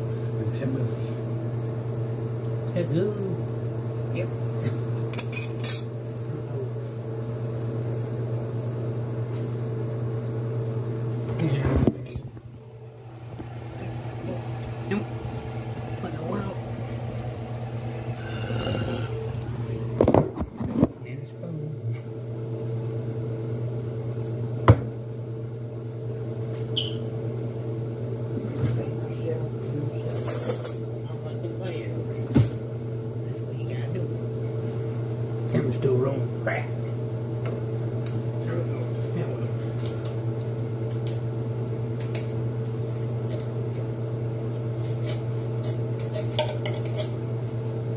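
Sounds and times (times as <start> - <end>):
steady low hum: 0.0 - 47.9
appliance motor humming: 10.5 - 22.2.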